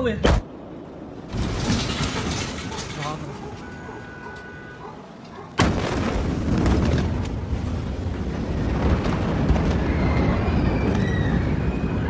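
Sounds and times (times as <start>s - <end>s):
explosion blast crack: 5.6s - 12.0s.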